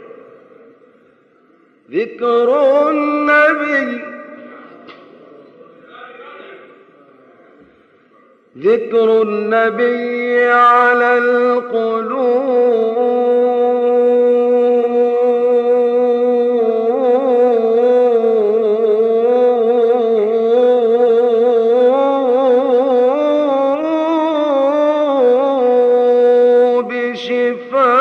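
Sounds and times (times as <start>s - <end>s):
man chanting unaccompanied: 1.9s - 4.8s, 8.5s - 28.0s.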